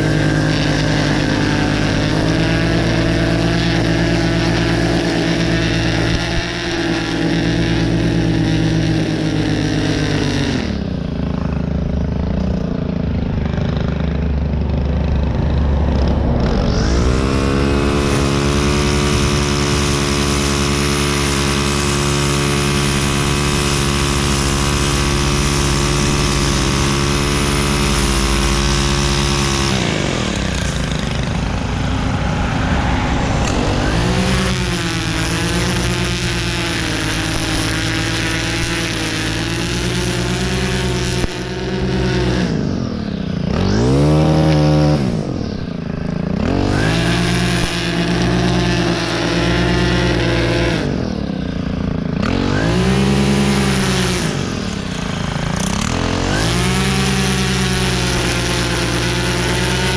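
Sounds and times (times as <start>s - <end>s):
string trimmer engine running: 0.0s - 59.9s
trimmer line cutting grass: 0.0s - 59.9s.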